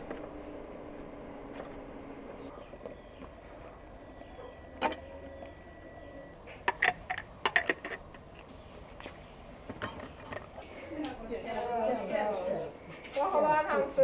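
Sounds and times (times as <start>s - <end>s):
tableware clinking: 4.8s - 5.1s, 6.6s - 8.2s, 9.7s - 10.5s.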